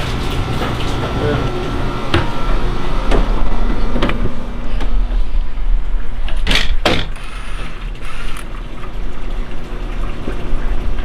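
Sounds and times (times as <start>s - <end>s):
steady low rumble: 1.5s - 6.9s.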